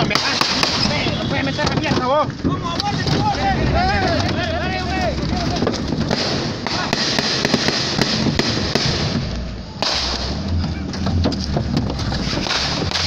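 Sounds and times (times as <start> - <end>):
background voices: 2.0 - 7.0.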